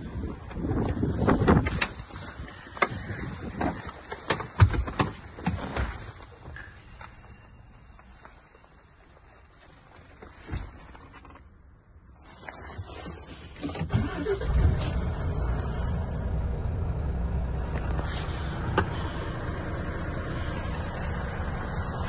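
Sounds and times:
diesel truck engine starting: 13.4 - 22.0.

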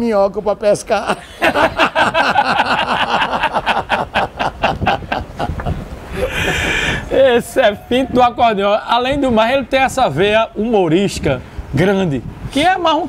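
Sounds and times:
men laughing heartily: 1.0 - 8.1.

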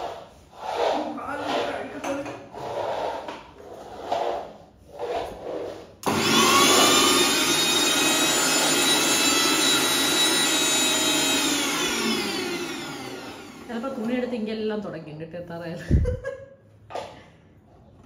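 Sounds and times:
mixer grinder motor whining: 6.0 - 14.4.

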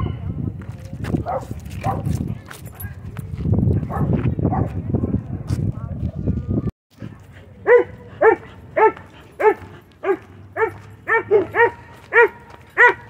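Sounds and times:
dog barking: 1.2 - 2.2, 3.8 - 4.8, 7.6 - 13.0.

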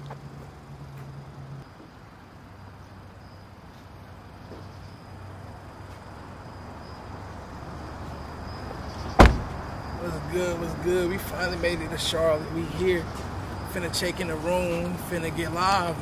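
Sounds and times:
insects trilling: 0.1 - 16.0
low rumble of idling cars: 9.2 - 16.0.

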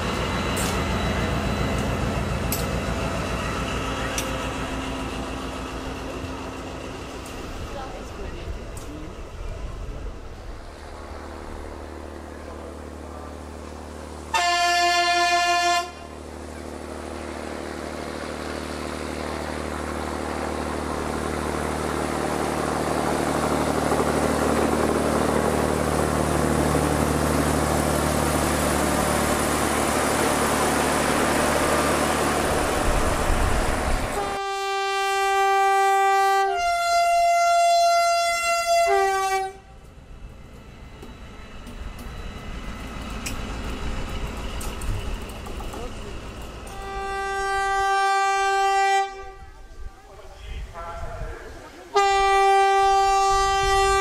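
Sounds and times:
train rail noise: 0.0 - 54.0
train horn blast: 14.3 - 16.2, 34.1 - 39.8, 46.7 - 50.2, 51.9 - 54.0
two-tone locomotive horn: 14.3 - 16.2, 34.1 - 39.8, 46.7 - 50.1, 51.9 - 54.0.

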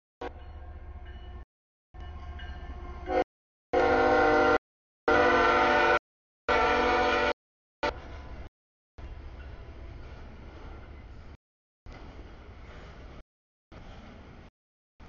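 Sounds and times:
train air horn blasts: 3.1 - 8.0.

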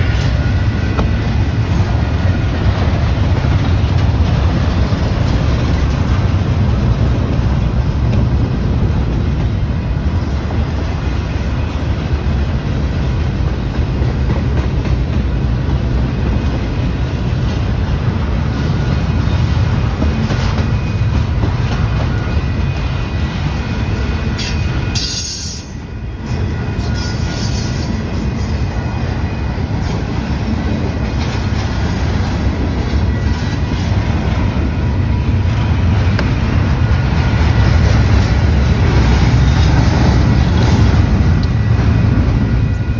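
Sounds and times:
freight train wheels rumbling: 0.0 - 42.9.

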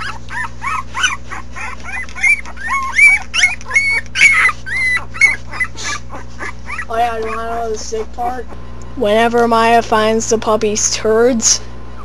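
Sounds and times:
newborn puppies squealing: 0.0 - 8.6.

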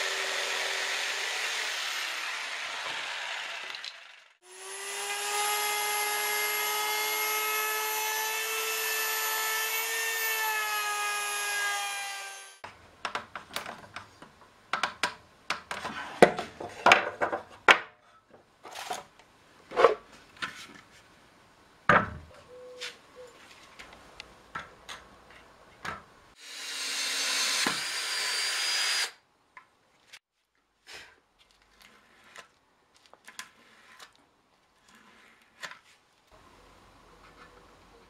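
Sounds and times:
cordless drill boring wood: 0.0 - 12.6, 26.4 - 29.2.

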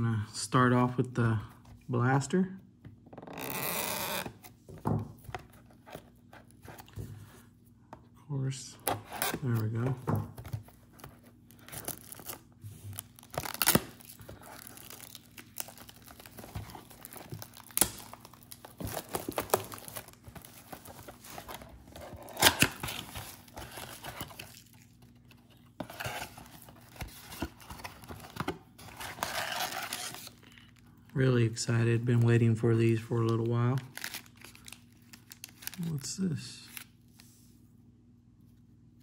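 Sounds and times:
packaging tearing and crinkling: 10.7 - 30.8, 33.6 - 36.1.

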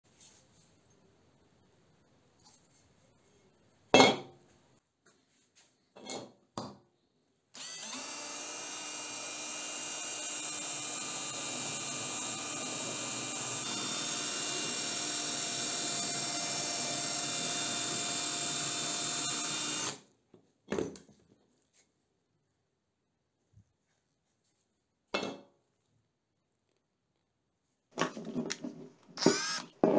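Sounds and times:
cordless drill drilling into metal: 7.6 - 20.0, 29.2 - 29.8.

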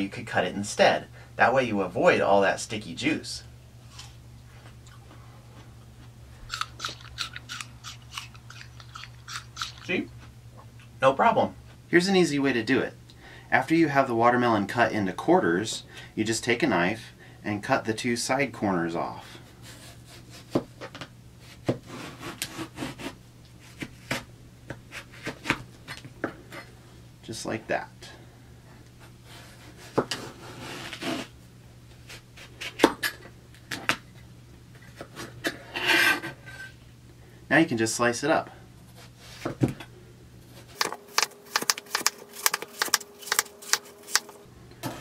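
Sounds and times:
knife crunching through watermelon: 6.4 - 10.1, 40.6 - 44.3
blade clicking on cutting board: 40.8 - 44.3.

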